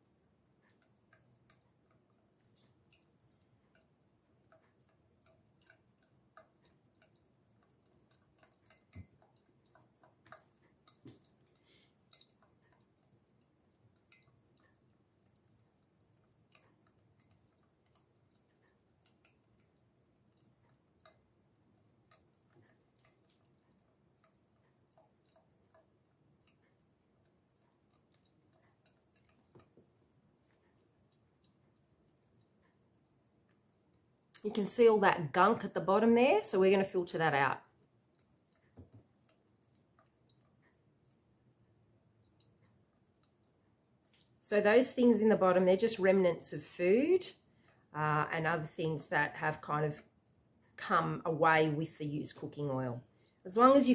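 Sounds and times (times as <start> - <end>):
soft ticks and clicks: 0.0 - 53.9
oil dripping into metal bowl: 0.6 - 34.6.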